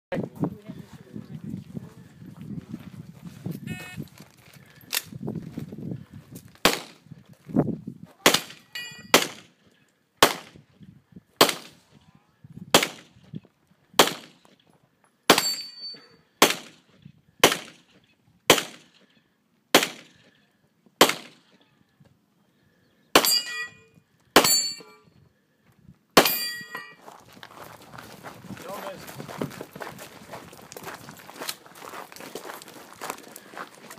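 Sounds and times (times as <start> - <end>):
pistol shots: 6.6 - 7.0, 8.2 - 9.5, 10.2 - 10.5, 11.4 - 11.8, 12.7 - 13.1, 14.0 - 14.4, 16.4 - 16.8, 17.4 - 17.9, 18.5 - 18.9, 19.7 - 20.2, 21.0 - 21.5
steel plate clanging: 23.2 - 25.0, 26.2 - 27.0.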